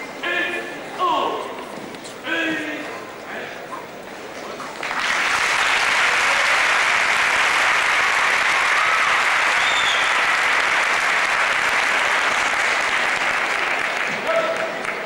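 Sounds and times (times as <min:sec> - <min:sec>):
large crowd applauding: 0:04.8 - 0:15.0.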